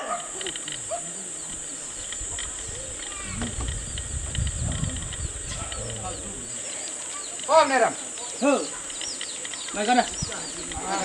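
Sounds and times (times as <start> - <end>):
high insect drone: 0.0 - 11.0
bird chirps: 0.1 - 11.0
low rumbling noise: 0.6 - 6.7.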